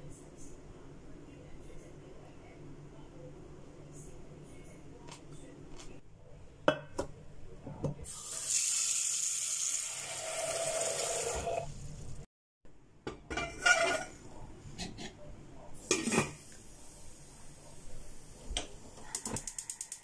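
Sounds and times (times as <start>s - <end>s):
metal pot clattering: 13.1s - 14.1s.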